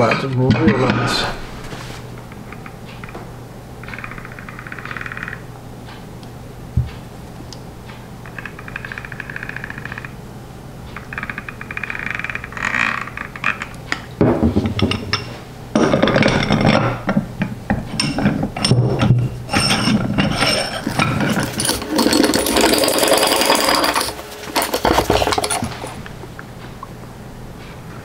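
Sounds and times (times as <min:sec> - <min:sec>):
vise handle bar clanking: 0:18.0 - 0:26.0
steel clinks and scraping: 0:19.5 - 0:26.0.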